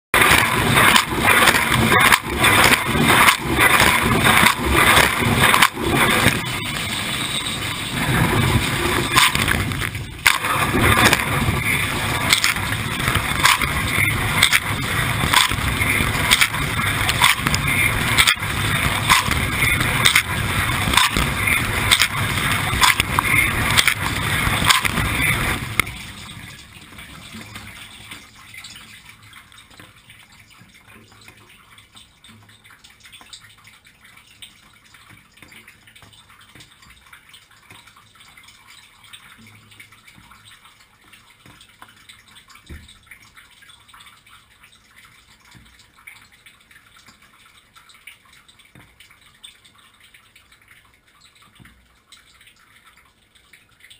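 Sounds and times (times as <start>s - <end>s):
dishwasher water jets spraying: 0.2s - 26.4s
faint dripping: 0.8s - 53.9s.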